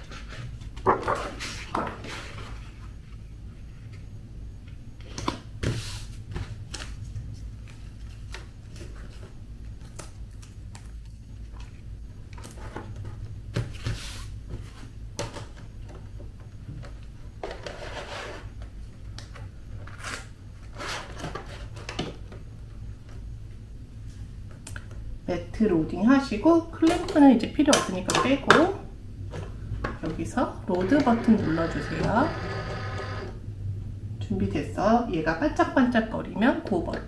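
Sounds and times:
low steady hum: 0:00.0 - 0:37.0
paper rustling: 0:00.1 - 0:02.9.

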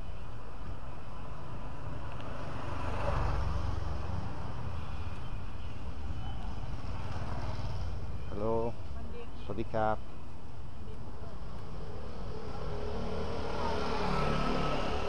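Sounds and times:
motor scooter engine approaching: 0:12.2 - 0:15.0.

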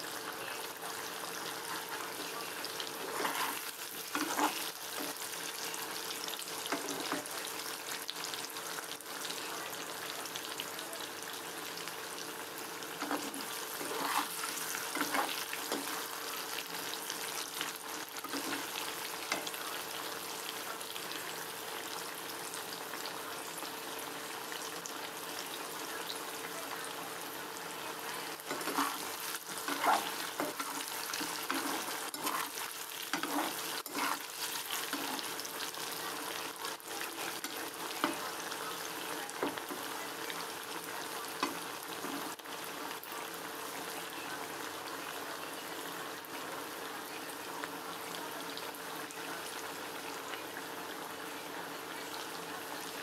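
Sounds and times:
potatoes sizzling in hot oil: 0:00.0 - 0:53.0
metal spatula scraping pan: 0:03.0 - 0:05.1, 0:13.0 - 0:16.0, 0:28.5 - 0:35.3.

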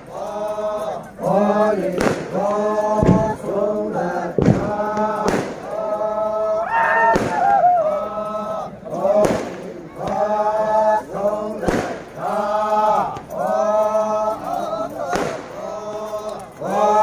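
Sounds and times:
group chanting in unison: 0:00.0 - 0:17.0
sharp cracks: 0:04.4 - 0:05.7, 0:11.6 - 0:12.1, 0:15.1 - 0:15.6.

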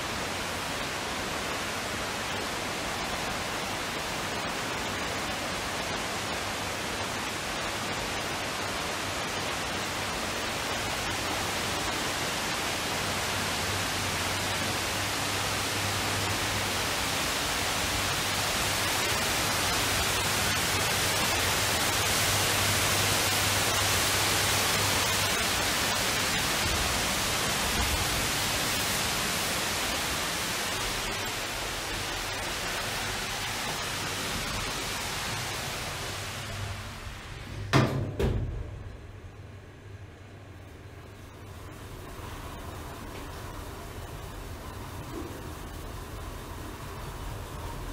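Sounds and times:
indoor waterfall rushing: 0:00.0 - 0:38.0, 0:40.8 - 0:47.9.

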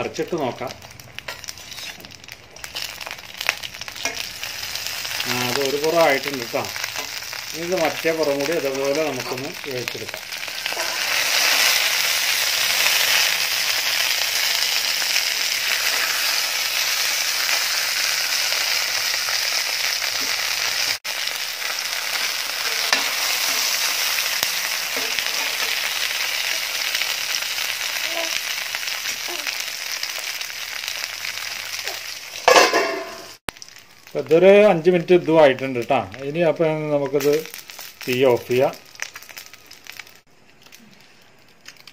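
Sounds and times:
fish sizzling in hot oil: 0:00.0 - 0:41.9.

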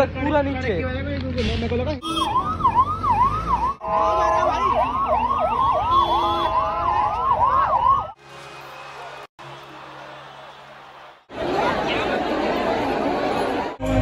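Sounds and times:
ambulance sirens yelping: 0:02.0 - 0:08.2.

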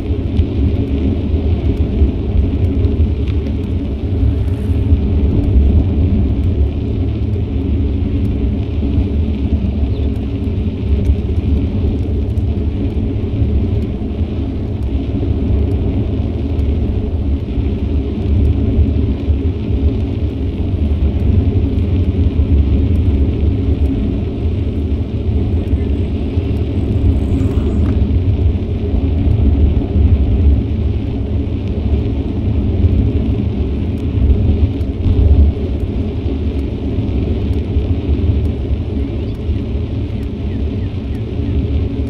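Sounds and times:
wind rumbling on microphone: 0:00.0 - 0:42.0
road noise: 0:01.2 - 0:18.4, 0:21.8 - 0:31.9.

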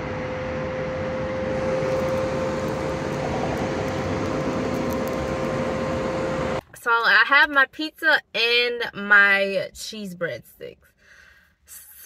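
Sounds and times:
machine hum with steady tone: 0:00.0 - 0:06.6.

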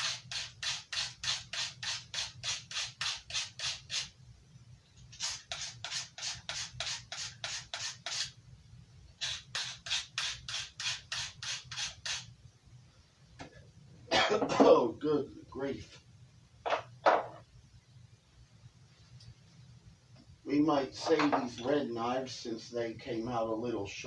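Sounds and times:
knife scraping on sharpener: 0:00.0 - 0:04.1, 0:09.2 - 0:12.3.

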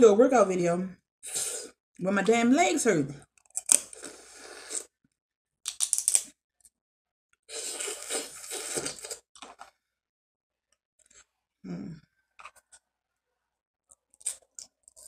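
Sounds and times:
lip smacks and sucking: 0:07.5 - 0:09.6.

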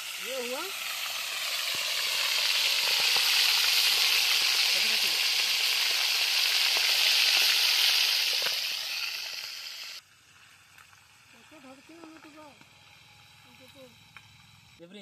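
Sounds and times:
liver sizzling in hot oil: 0:00.0 - 0:12.1.

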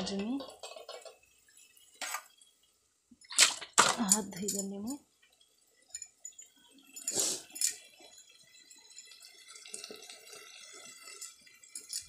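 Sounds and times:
water splashing and dripping: 0:05.2 - 0:12.0.

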